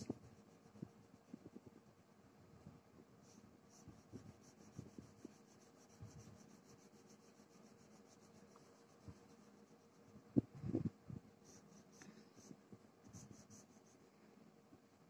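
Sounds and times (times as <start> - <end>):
colour pencil scratching on paper: 0.0 - 1.4, 3.2 - 10.2, 11.4 - 14.0.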